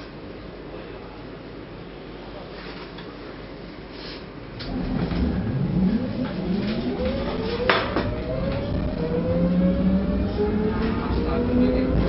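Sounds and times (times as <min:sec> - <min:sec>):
tram motor whine: 0:04.5 - 0:12.0
running gear rumble: 0:04.6 - 0:09.2.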